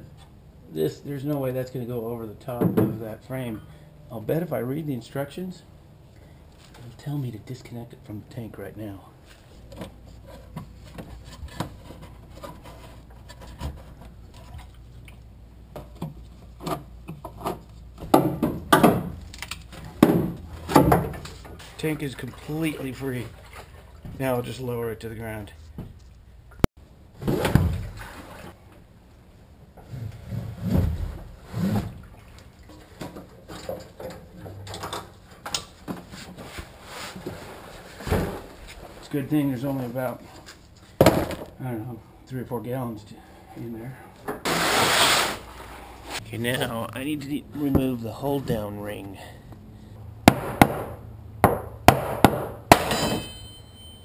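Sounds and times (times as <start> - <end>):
fuel sloshing in plastic tank: 19.9 - 24.2.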